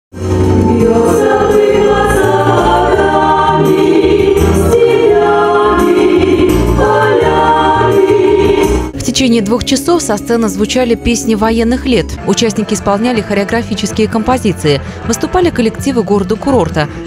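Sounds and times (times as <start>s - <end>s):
mixed choir singing: 0.4s - 9.0s.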